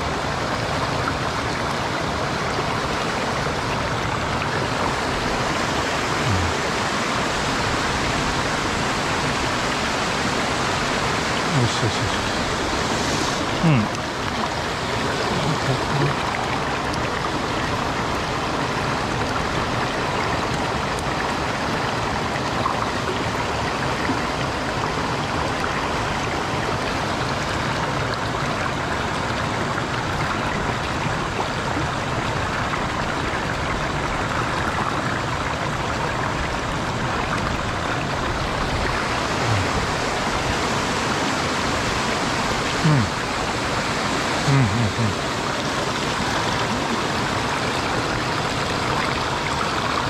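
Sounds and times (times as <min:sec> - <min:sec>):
stream rushing over rocks: 0:00.0 - 0:50.0.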